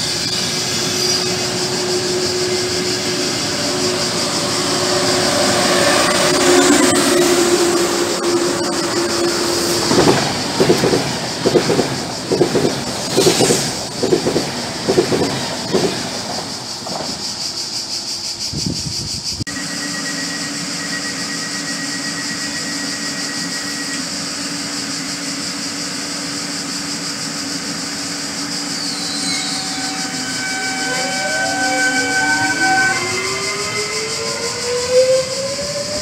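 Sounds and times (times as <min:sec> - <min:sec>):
thin high whistle: 0:00.0 - 0:10.1, 0:18.4 - 0:25.8, 0:26.9 - 0:36.0
electric train humming: 0:00.0 - 0:36.0
train bogies thumping over rails: 0:09.8 - 0:17.5.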